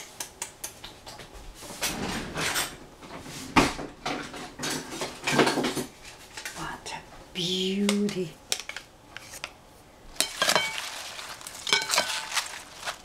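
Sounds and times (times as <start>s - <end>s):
kitchen rustling and knocking: 1.0s - 6.5s, 10.2s - 13.0s.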